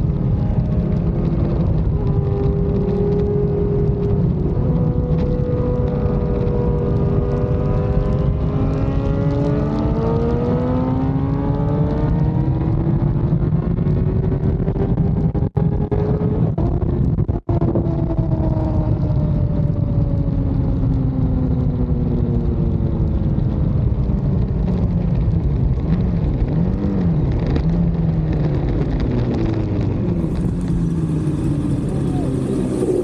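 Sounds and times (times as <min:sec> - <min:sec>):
wind rush: 0:28.0 - 0:33.0
motorcycle engine slowing: 0:29.5 - 0:33.0.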